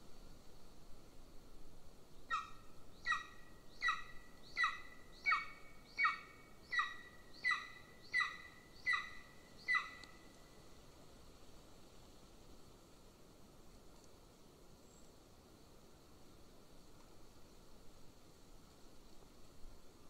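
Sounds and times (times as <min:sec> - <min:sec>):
eagle calling: 0:02.3 - 0:10.3.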